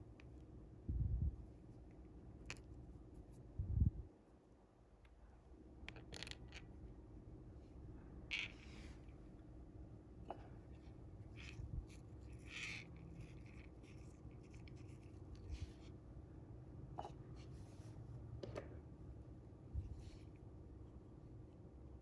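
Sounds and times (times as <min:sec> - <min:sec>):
low steady hum: 0:00.0 - 0:22.0
fingers rubbing fishing line: 0:11.2 - 0:15.9.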